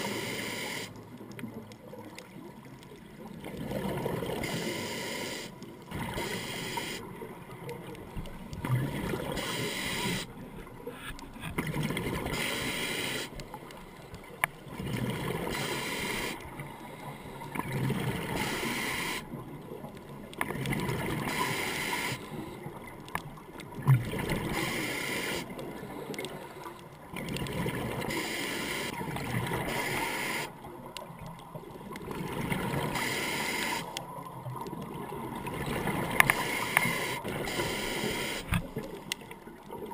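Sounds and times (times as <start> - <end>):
diver breathing through regulator: 0.0 - 1.0, 4.4 - 7.1, 9.2 - 10.3, 12.3 - 13.4, 15.4 - 17.5, 18.3 - 19.3, 21.3 - 22.7, 24.5 - 26.3, 36.3 - 38.6.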